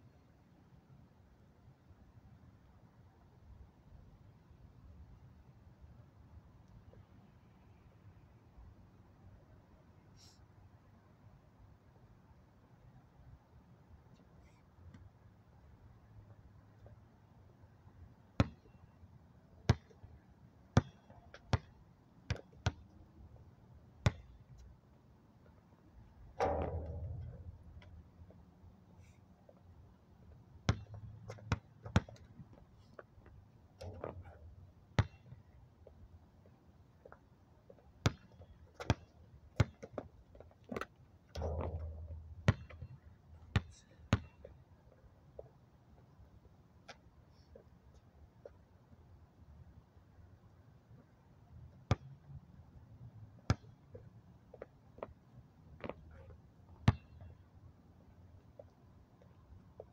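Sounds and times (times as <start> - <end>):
basketball bouncing on court: 20.8 - 21.7, 24.0 - 24.4, 26.4 - 27.5, 30.7 - 32.3, 35.0 - 35.4, 38.0 - 39.9, 41.4 - 44.4, 53.5 - 53.8, 56.8 - 57.3.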